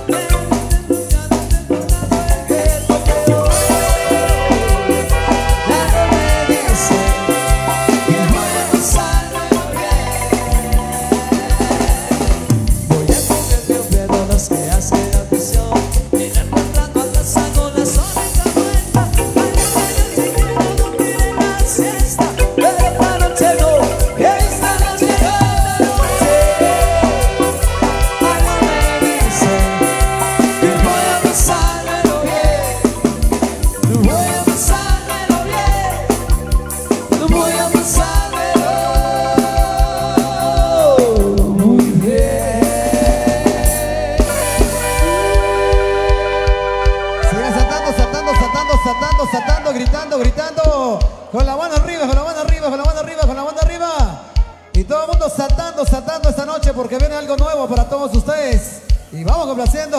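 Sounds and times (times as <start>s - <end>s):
marimba melody: 0.0s - 50.4s
drum kit beat: 0.0s - 59.9s.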